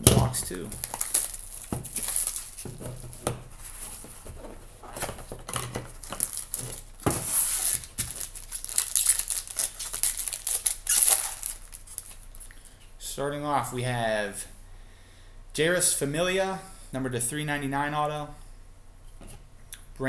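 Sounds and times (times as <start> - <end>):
packaging crinkling and tearing: 0.2 - 12.5.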